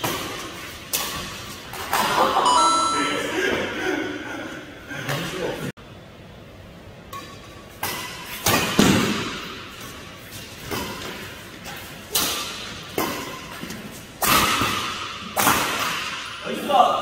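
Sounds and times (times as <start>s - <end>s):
rackets hitting shuttlecock: 7.1s - 9.8s, 10.6s - 16.5s.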